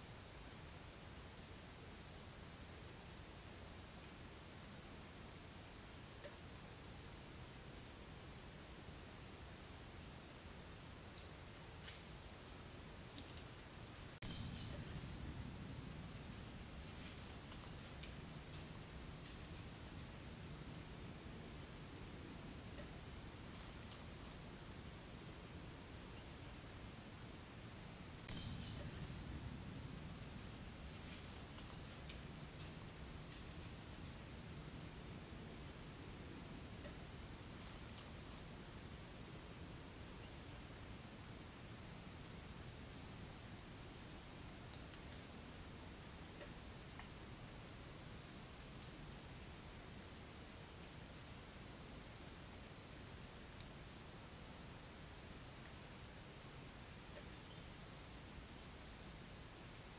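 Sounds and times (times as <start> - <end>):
faint low rush: 13.8 - 41.0
high chirping calls: 14.2 - 26.6, 27.4 - 34.6.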